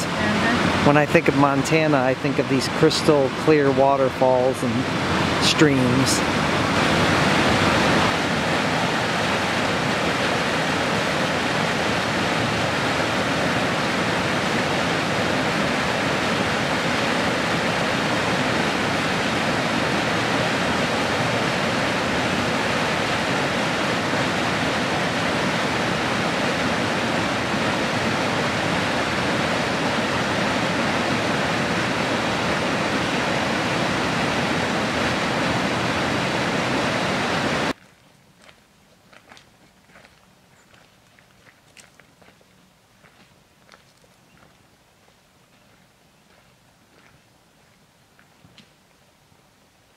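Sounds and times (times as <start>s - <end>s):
creek rushing over rocks: 0.0s - 37.8s.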